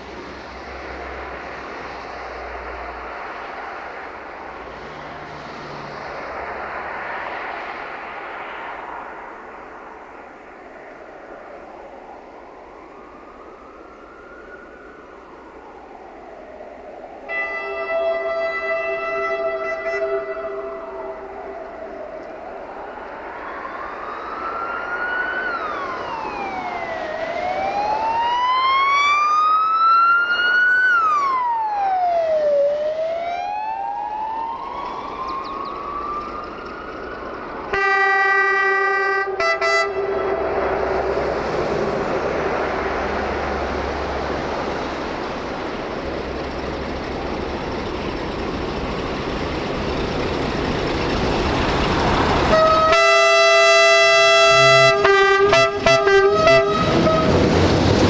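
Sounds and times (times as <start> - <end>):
passing train rumble: 0.0 - 58.0
wailing siren: 0.0 - 58.0
train horn: 17.3 - 21.4, 37.7 - 40.8, 52.5 - 57.7.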